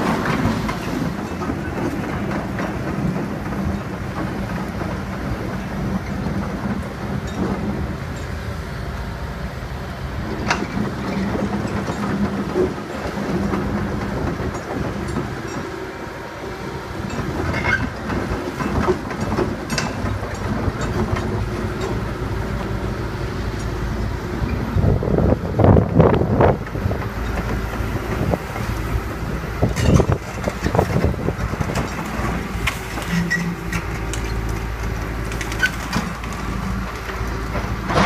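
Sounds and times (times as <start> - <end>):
excavator diesel engine running: 0.0 - 38.0
metallic clanks and knocks: 17.0 - 22.0.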